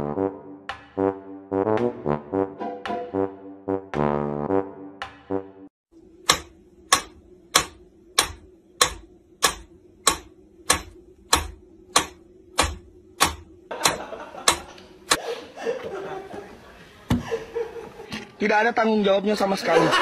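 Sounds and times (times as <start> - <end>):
metronome ticking: 6.3 - 15.2.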